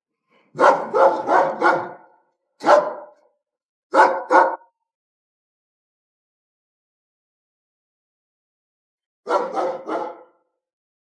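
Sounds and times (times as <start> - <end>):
dog barking: 0.5 - 4.8, 9.3 - 10.6.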